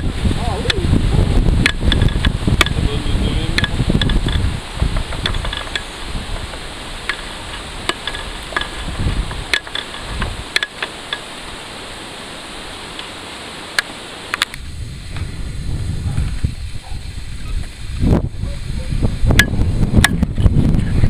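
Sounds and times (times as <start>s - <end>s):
river rushing: 0.0s - 19.8s
sharp clicks and knocks: 1.6s - 2.8s, 3.5s - 11.3s.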